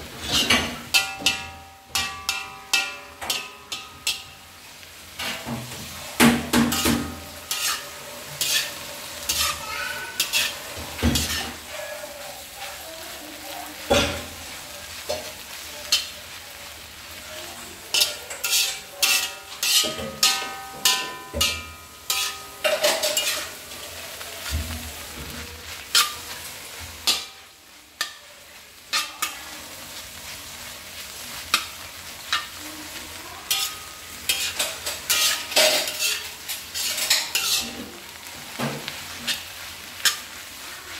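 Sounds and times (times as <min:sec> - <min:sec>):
spatula scraping metal pan: 0:00.0 - 0:04.4, 0:05.1 - 0:12.9, 0:17.8 - 0:27.4, 0:33.4 - 0:40.6
food sizzling: 0:00.0 - 0:40.9.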